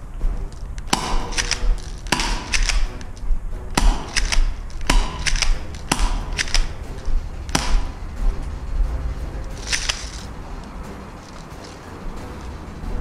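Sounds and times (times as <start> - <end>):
sharp clicks: 0.2 - 8.6, 9.4 - 12.5
airsoft pistol shots: 0.9 - 3.1, 3.7 - 8.3.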